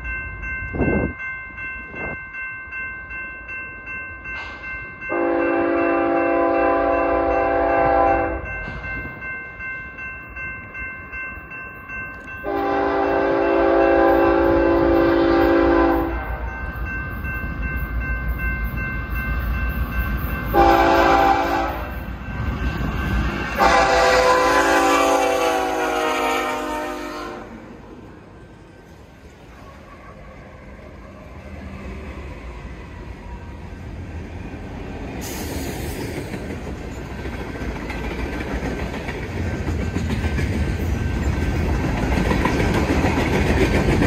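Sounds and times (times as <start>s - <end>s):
low rumble of locomotives: 0.0s - 2.8s, 3.4s - 44.0s
crossing bell ringing: 0.0s - 34.0s, 38.8s - 44.0s
locomotive air horn blasts: 5.1s - 8.4s, 12.4s - 16.4s, 20.6s - 22.0s, 23.6s - 27.6s.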